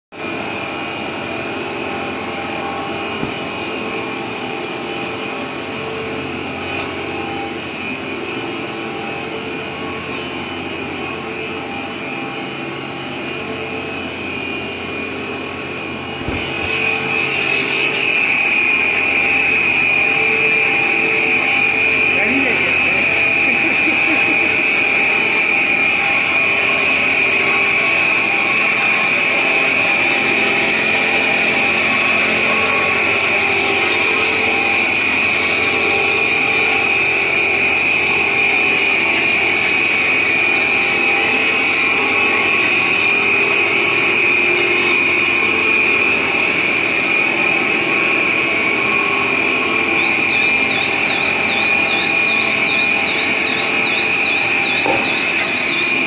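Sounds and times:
constant high whine: 0.1s - 56.0s
production line mechanical din: 0.2s - 56.0s
warbling high tone: 0.3s - 56.0s.

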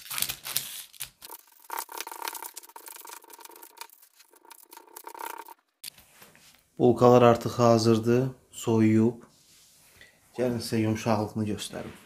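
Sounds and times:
baking paper crinkling: 0.0s - 4.7s.

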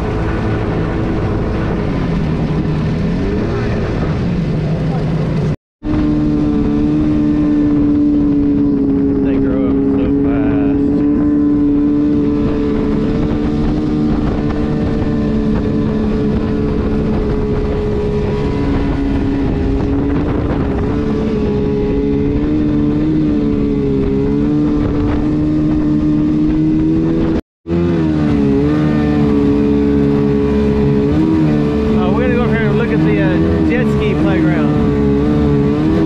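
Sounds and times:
jet-drive boat engine running: 0.0s - 36.0s
water rushing along hull: 0.0s - 36.0s.

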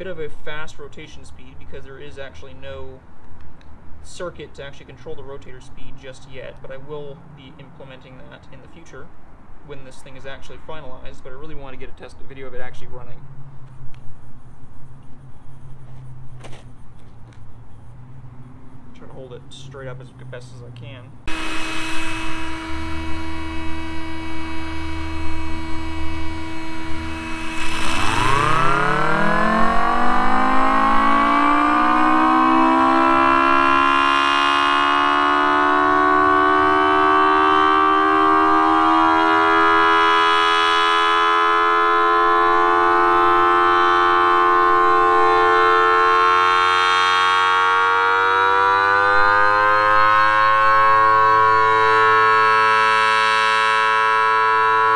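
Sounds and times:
siren low rumbling hum: 0.0s - 3.1s, 3.8s - 54.9s
siren two-tone wail: 21.3s - 54.9s.

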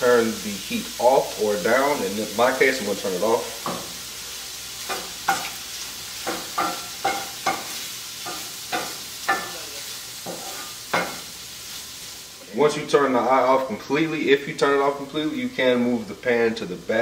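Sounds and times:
shrimp sizzling in butter: 0.0s - 17.0s
spatula scraping frying pan: 4.8s - 9.6s, 10.2s - 11.9s.

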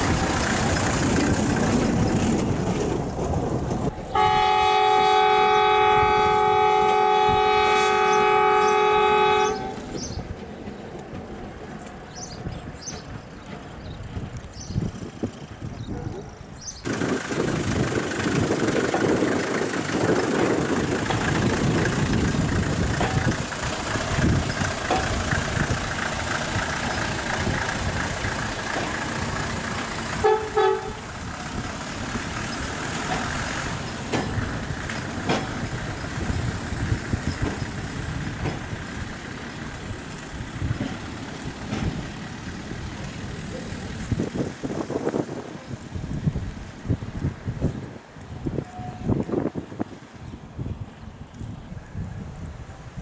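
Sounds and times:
rail vehicle engine running: 0.0s - 53.0s
horn toot: 4.1s - 9.8s, 30.2s - 31.1s.

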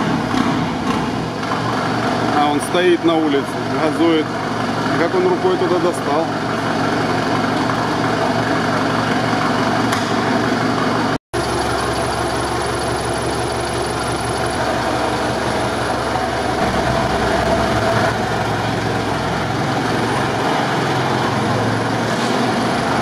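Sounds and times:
truck engine idling: 11.4s - 23.0s.

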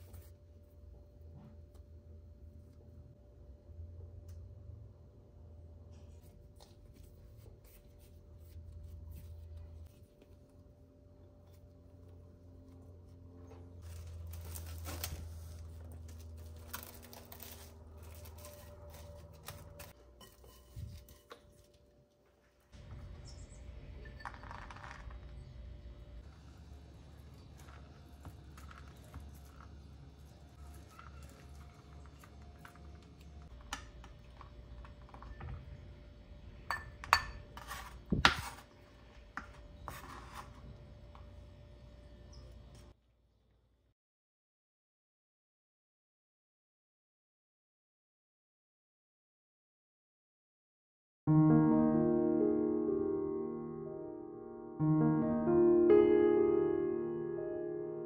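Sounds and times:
plastic cling film crinkling: 13.8s - 20.0s
knife scraping on cutting board: 37.6s - 38.7s.

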